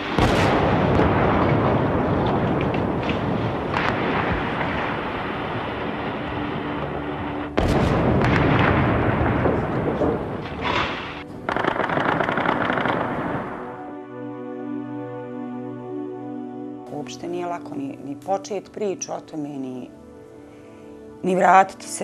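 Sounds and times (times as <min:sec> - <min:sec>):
heavy shell blasts rumbling: 0:00.0 - 0:13.8
short sharp cracks: 0:10.5 - 0:13.7.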